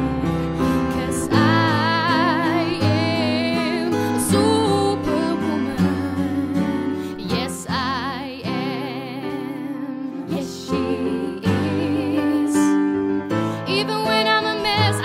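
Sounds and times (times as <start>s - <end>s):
person singing with vibrato: 0.0s - 12.9s, 13.5s - 15.0s
gentle instrumental backing: 0.0s - 15.0s.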